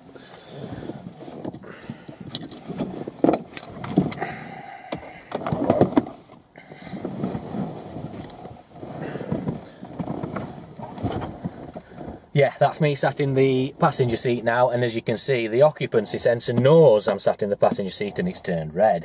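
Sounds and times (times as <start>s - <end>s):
clothing rustling on car seats: 0.0s - 4.4s, 5.4s - 14.6s.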